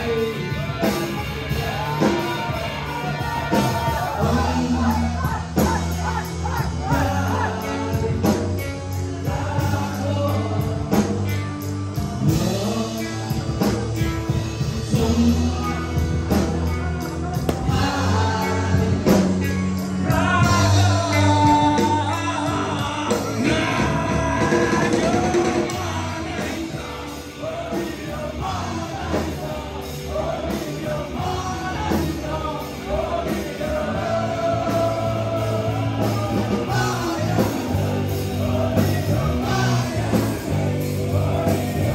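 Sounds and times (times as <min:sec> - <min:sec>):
bass guitar: 0:00.0 - 0:41.9
drum kit: 0:00.0 - 0:41.9
electric guitars: 0:00.0 - 0:41.9
male vocals: 0:00.0 - 0:41.9.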